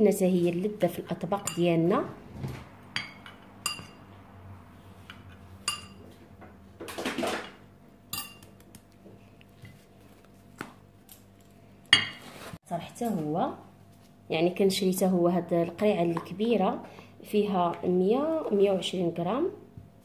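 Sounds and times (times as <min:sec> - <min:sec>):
glass jars clinking: 0:08.1 - 0:08.5.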